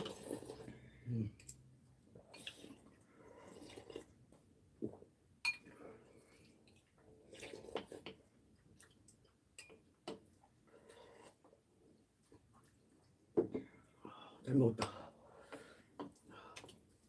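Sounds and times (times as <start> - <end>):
sipping soup: 0.0 - 4.2.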